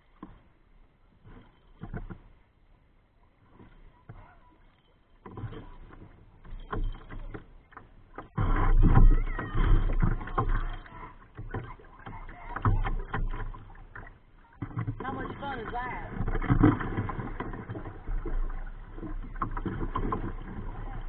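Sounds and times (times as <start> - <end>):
water sloshing against kayak hull: 0.0 - 21.0
rumbling microphone noise: 8.3 - 11.0.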